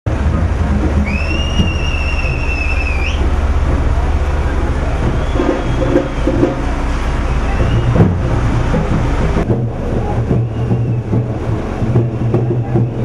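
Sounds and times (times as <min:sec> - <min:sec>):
crowd noise: 0:00.1 - 0:13.0
low rumble: 0:00.1 - 0:13.0
voices: 0:00.1 - 0:13.0
long whistle: 0:01.0 - 0:03.4, 0:04.4 - 0:08.2, 0:10.3 - 0:11.3.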